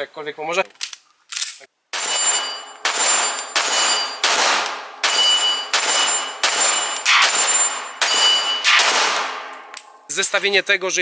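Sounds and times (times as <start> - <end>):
pistol shots with ringing echo: 1.9 - 9.8.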